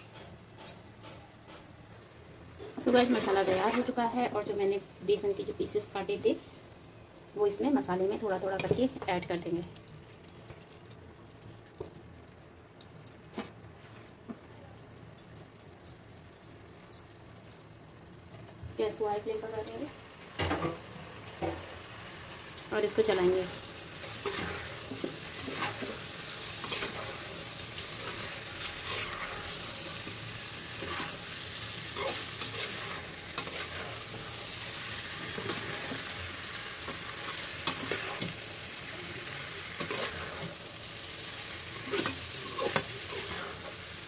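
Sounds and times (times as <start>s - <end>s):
food sizzling in a pan: 0.0s - 44.0s
spatula scraping and tapping pan: 0.1s - 1.7s, 24.0s - 36.2s, 36.8s - 38.4s, 39.8s - 40.6s.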